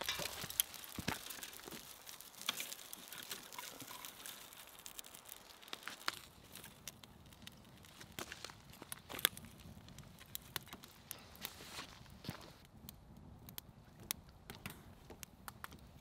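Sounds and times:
twigs rustling and snapping: 0.0 - 12.7
campfire crackling: 0.0 - 16.0.

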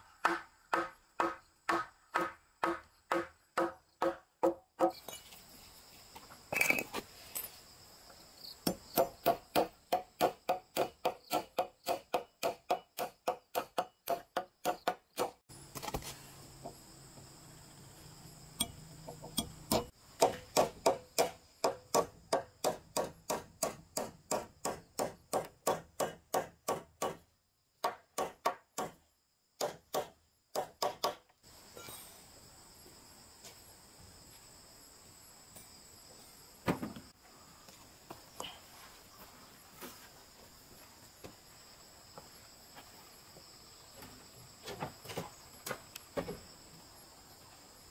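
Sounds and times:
hammer driving nail into wood: 19.3 - 27.2.

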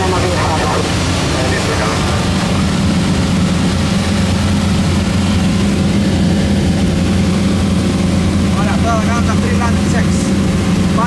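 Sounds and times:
plane engine and propeller droning: 0.0 - 11.0
rushing air noise: 0.0 - 11.0.

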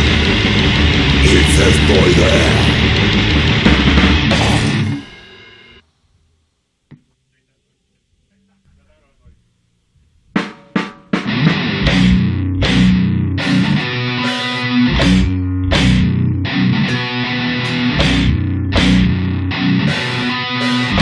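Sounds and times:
grindcore band playing: 0.0 - 5.8, 10.4 - 21.0
cymbal crashes: 2.2 - 5.8.

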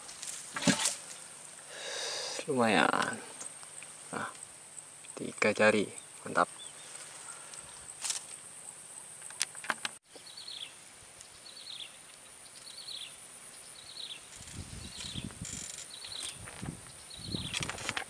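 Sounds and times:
high-pitched insect drone: 14.1 - 16.4.

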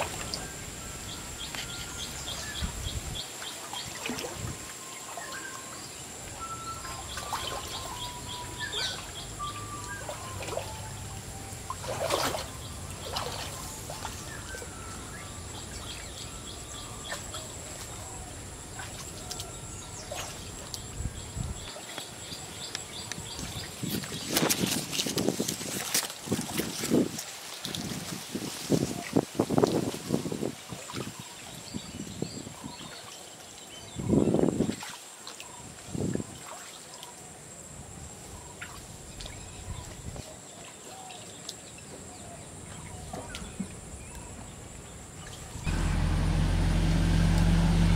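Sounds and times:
water trickling: 0.0 - 37.2
birds chirping and whistling: 0.2 - 4.0, 4.8 - 24.7
person wading through water: 3.4 - 16.0, 34.6 - 37.1
steady high-pitched tone: 4.8 - 18.5.

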